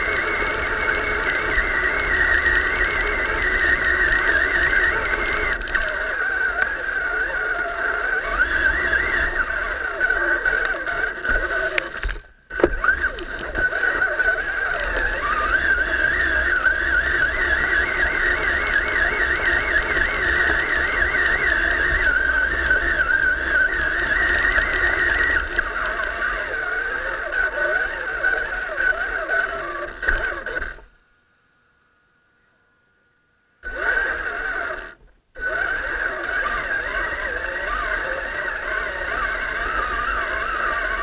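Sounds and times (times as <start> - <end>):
truck bouncing rumble: 0.0 - 30.8
electric motor whining: 0.0 - 31.0, 33.6 - 41.0.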